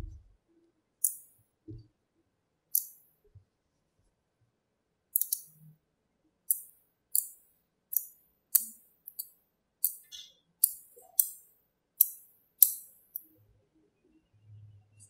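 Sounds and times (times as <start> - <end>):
magnetic balls snapping together: 1.0 - 1.4, 2.8 - 3.0, 5.2 - 5.6, 6.5 - 10.0, 10.6 - 13.3.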